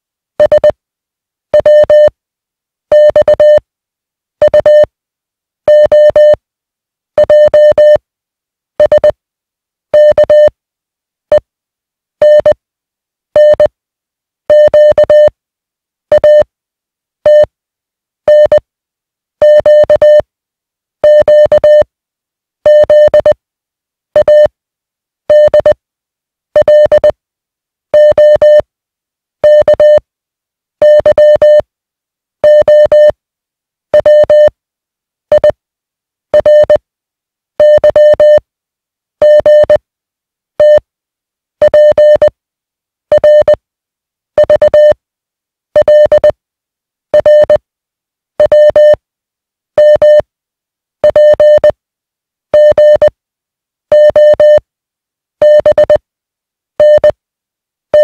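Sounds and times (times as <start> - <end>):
morse code beeps: 0.4 - 0.7, 3.0 - 3.6, 5.7 - 6.4, 8.8 - 9.1, 18.3 - 18.6, 21.1 - 21.8, 22.7 - 23.3, 25.3 - 25.8, 26.6 - 27.1, 28.0 - 28.6, 29.5 - 30.0, 30.8 - 31.6, 32.5 - 33.1, 34.0 - 34.5, 36.4 - 36.8, 37.6 - 38.4, 39.2 - 39.8, 40.6 - 40.8, 41.6 - 42.3, 43.1 - 43.6, 44.4 - 45.0, 45.8 - 46.3, 47.2 - 47.6, 48.4 - 49.0, 49.8 - 50.2, 51.0 - 51.7, 52.6 - 53.1, 53.9 - 54.6, 55.4 - 56.0, 56.8 - 57.1.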